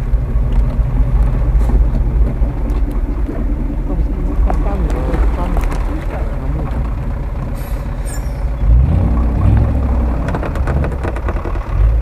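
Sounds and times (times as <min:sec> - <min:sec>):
vehicle engine rumbling under load: 0:00.0 - 0:12.0
brief high-pitched squeal: 0:07.6 - 0:08.5.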